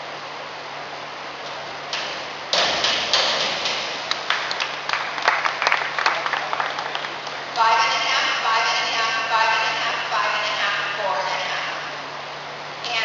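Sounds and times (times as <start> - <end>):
steady hiss in echoing hall: 0.0 - 13.0
people clapping: 2.8 - 7.6.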